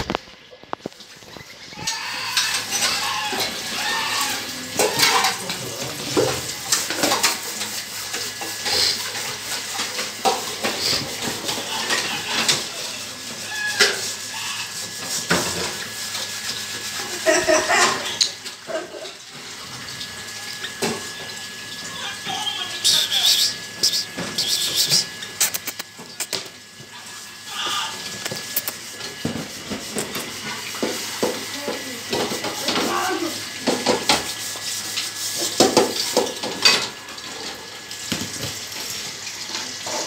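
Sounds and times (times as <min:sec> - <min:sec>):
metal and dishware clattering: 0:04.8 - 0:07.4.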